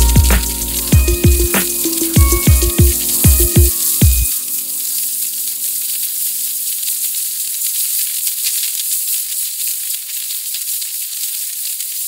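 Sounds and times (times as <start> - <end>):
background music: 0.0 - 5.0
high-pitched hissing: 0.0 - 6.1.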